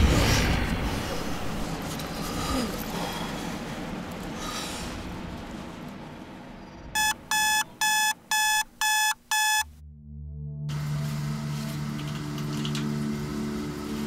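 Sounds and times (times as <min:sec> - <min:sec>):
alarm clock beeping: 0:07.0 - 0:09.7.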